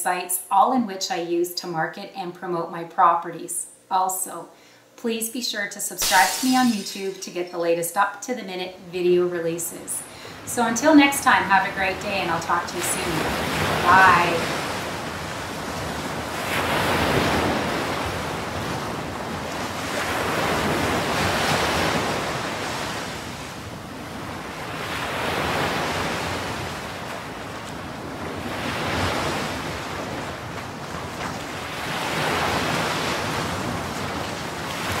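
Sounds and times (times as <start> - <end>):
ocean waves washing in: 6.0 - 7.0, 10.0 - 35.0.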